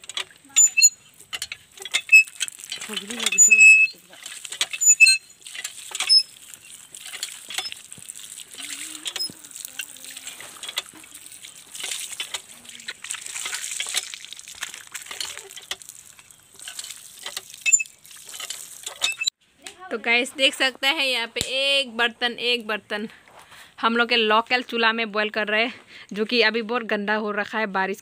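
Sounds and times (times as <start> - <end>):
water splashing on stone: 0.0 - 19.3.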